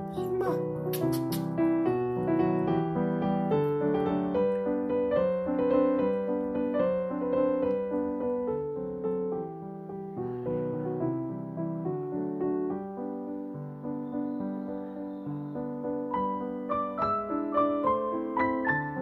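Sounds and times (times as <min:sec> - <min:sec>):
slow piano music: 0:00.0 - 0:19.0.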